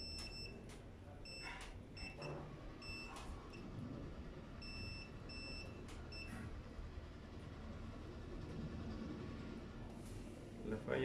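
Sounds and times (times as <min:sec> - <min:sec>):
multimeter continuity beeps: 0:00.0 - 0:03.7, 0:04.6 - 0:06.5.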